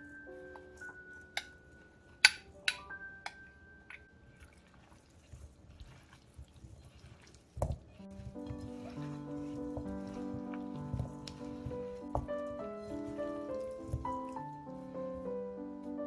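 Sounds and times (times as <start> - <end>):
plinking bell-like background music: 0.0 - 4.4
wet squishing of chicken in flour: 4.2 - 15.3.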